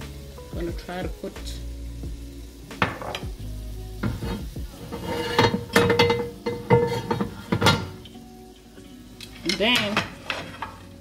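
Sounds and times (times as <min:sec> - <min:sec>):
utensils clattering on metal pans: 0:02.8 - 0:03.3, 0:04.0 - 0:11.0.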